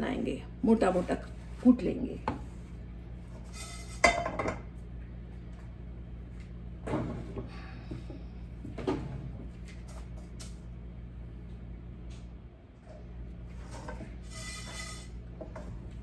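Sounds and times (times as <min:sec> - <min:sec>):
steady low hum: 0:00.0 - 0:16.0
spatula scraping pan: 0:03.3 - 0:04.2, 0:13.6 - 0:15.7.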